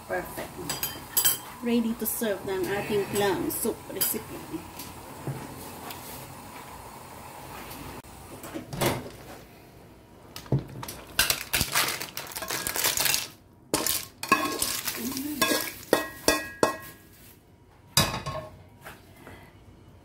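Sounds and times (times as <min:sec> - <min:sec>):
clam shells clattering in dish: 0:11.1 - 0:16.2.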